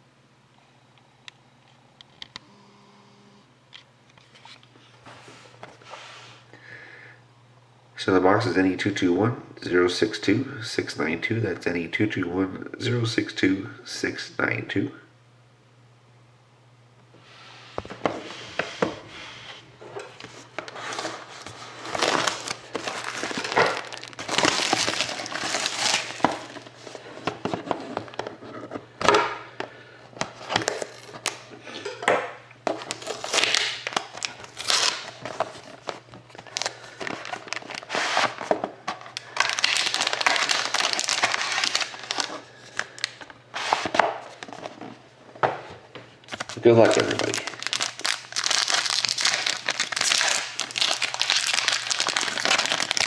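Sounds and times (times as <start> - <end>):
plastic wrap tearing and crinkling: 20.7 - 26.8, 30.4 - 31.4, 32.8 - 44.7, 46.3 - 53.0.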